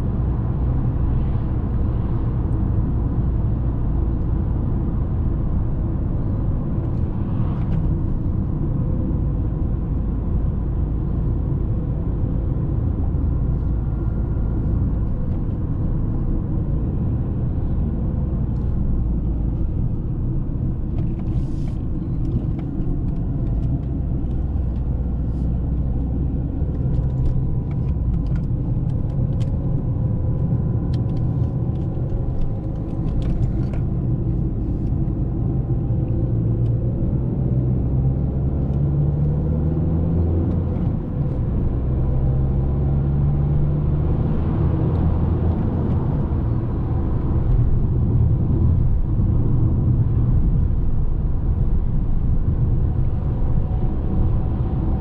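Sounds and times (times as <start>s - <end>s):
car engine and tyre rumble: 0.0s - 55.0s.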